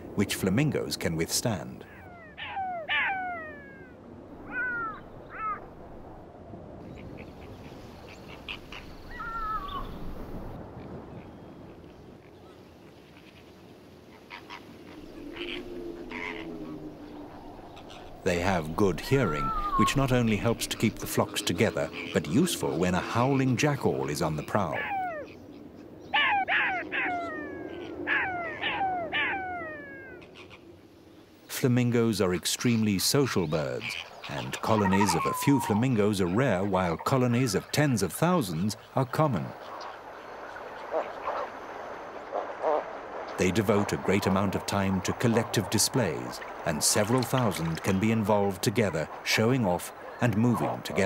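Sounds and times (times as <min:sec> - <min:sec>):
jackal yelping: 0:01.9 - 0:05.6, 0:15.3 - 0:20.4, 0:24.7 - 0:25.4, 0:26.1 - 0:30.6, 0:34.4 - 0:35.8
jackal wavering wail: 0:26.2 - 0:30.2, 0:34.6 - 0:36.0.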